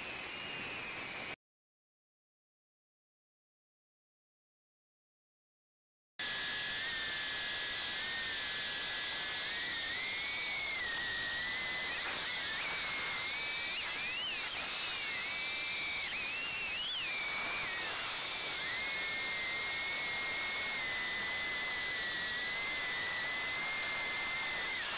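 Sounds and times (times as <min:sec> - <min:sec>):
drone propellers whining: 0:06.4 - 0:24.9.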